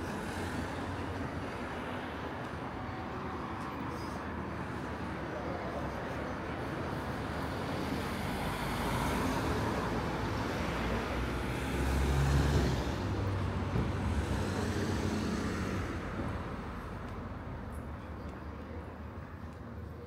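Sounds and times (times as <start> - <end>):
vehicle passing on road: 8.0 - 17.0.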